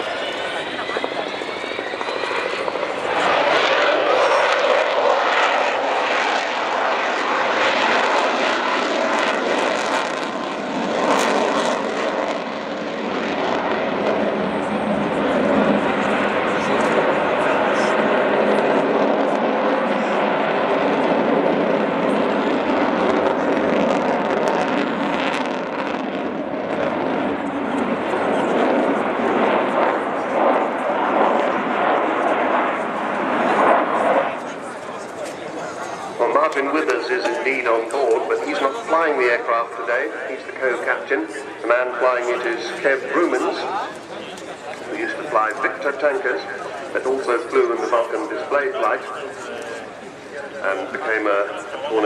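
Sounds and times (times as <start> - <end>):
jet aircraft flying past: 0.0 - 52.0.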